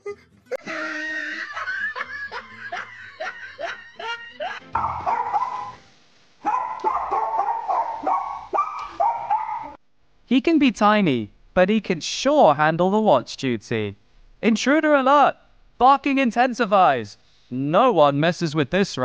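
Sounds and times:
small dog barking: 4.8 - 5.8, 6.4 - 9.8.

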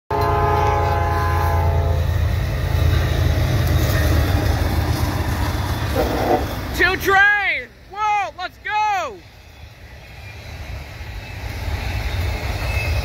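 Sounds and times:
locomotive horn chord: 0.1 - 2.1, 5.9 - 6.5.

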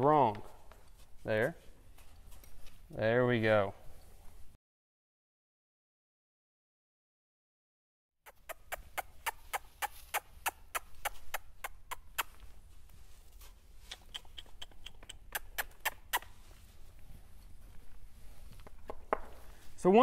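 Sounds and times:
riding crop tapping: 18.5 - 19.6.

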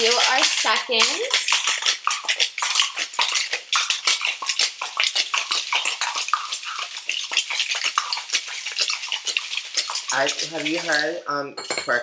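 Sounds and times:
cocktail shaker clattering: 8.8 - 12.0.

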